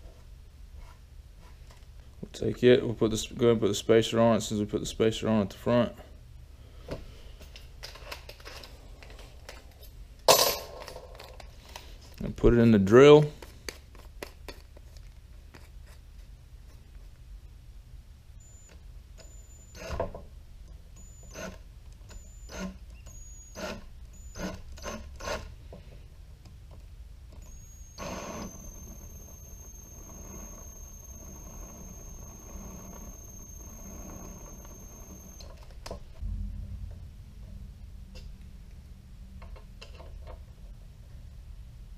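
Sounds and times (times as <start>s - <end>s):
cordless drill motor whining: 27.4s - 35.5s
low knock: 36.2s - 38.5s.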